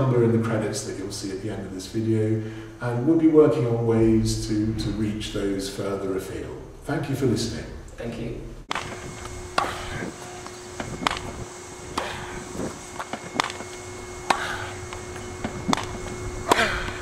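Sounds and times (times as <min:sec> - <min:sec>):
faint steady hum: 0:00.0 - 0:17.0
tennis balls struck and bouncing: 0:15.7 - 0:17.0.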